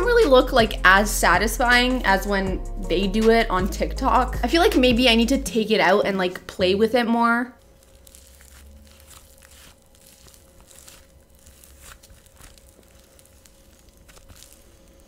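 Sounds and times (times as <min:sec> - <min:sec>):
slime crackling and tearing: 0:07.6 - 0:15.0.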